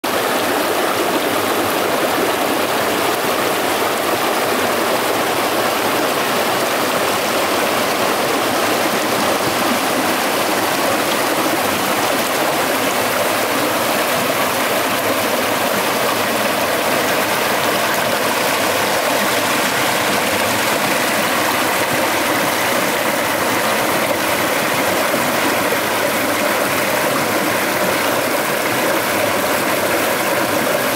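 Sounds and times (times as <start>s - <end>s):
creek water rushing over rocks: 0.0s - 30.9s.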